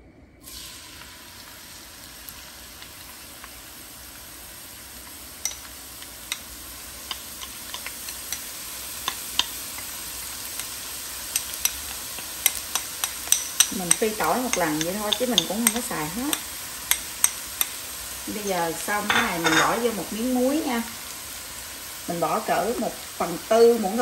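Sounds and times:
garlic sizzling in hot oil: 0:00.4 - 0:24.0
oil popping and crackling: 0:02.0 - 0:18.1.

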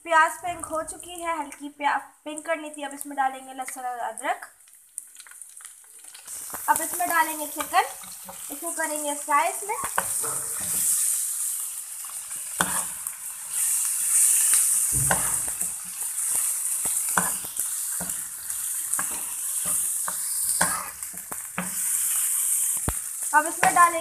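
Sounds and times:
chicken sizzling in oil: 0:02.9 - 0:24.0
spatula scraping a pan: 0:09.8 - 0:24.0.

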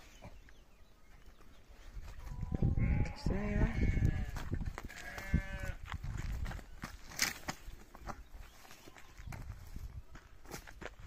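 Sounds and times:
sheep bleating: 0:02.5 - 0:05.8.

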